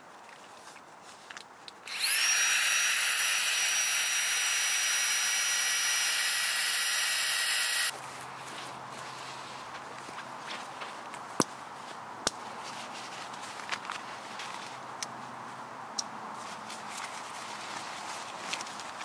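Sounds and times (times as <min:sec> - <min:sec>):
small electric motor whining: 0:01.9 - 0:07.9.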